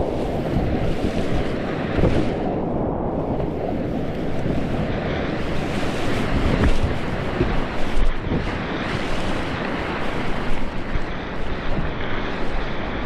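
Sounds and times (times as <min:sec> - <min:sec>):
wind buffeting microphone: 0:00.0 - 0:13.0
whitewater rapids rushing: 0:04.1 - 0:13.0.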